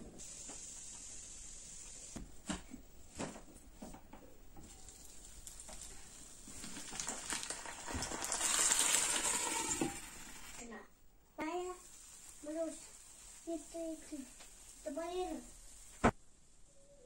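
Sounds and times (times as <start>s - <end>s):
food sizzling in a frying pan: 0.0s - 2.2s, 4.6s - 10.7s, 11.4s - 16.0s.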